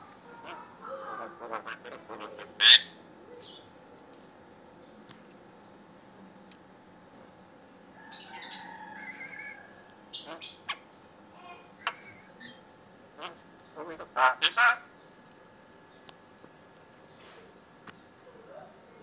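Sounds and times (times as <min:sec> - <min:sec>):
bird squawks: 0:00.4 - 0:03.7, 0:08.1 - 0:10.9, 0:11.8 - 0:12.6, 0:13.2 - 0:14.9.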